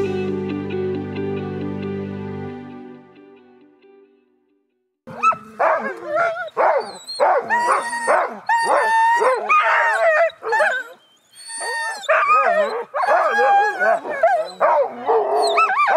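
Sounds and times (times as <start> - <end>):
dogs yipping whining and barking: 5.1 - 15.9.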